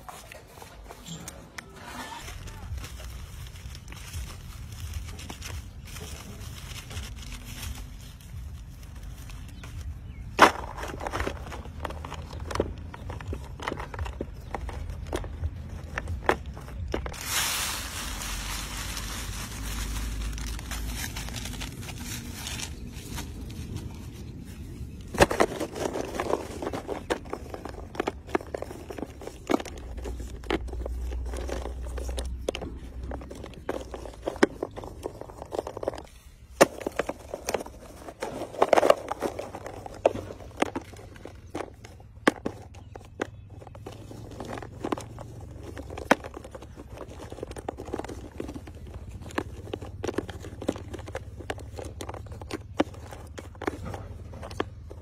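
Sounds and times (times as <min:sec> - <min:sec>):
paper tubes clattering in metal tray: 0:16.0 - 0:23.4.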